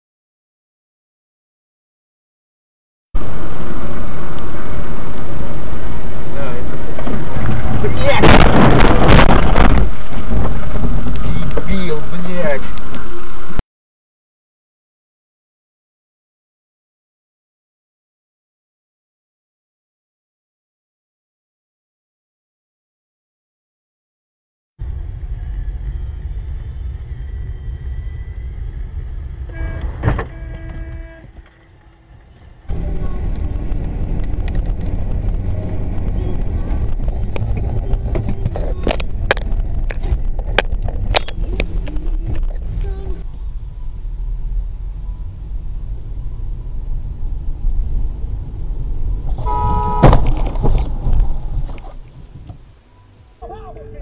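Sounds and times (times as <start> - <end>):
car engine and road rumble: 3.2 - 13.6, 24.8 - 54.0
car crash impact: 7.0 - 10.5, 29.8 - 31.0, 49.3 - 52.0
car horn blasts: 29.5 - 31.4, 49.3 - 51.1
sharp thump: 29.8 - 31.4, 49.6 - 51.8.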